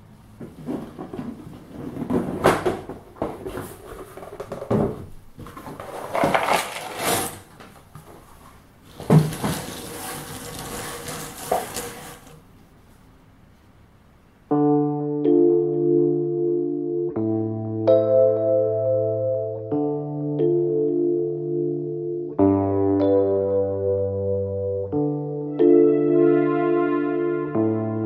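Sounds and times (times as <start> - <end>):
puzzle pieces clattering on table: 5.7 - 7.4
cardboard box handled: 8.9 - 12.3.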